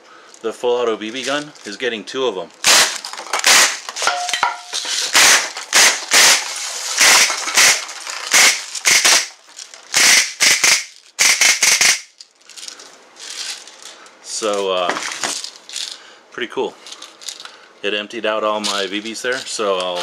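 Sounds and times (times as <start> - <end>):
bbs hitting cans and jugs: 2.6 - 12.2
bb guns firing rapid bursts: 5.1 - 12.0.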